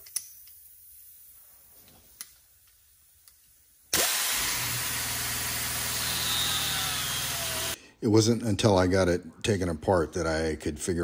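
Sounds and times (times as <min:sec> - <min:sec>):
pneumatic angle grinder running: 0:04.0 - 0:07.8.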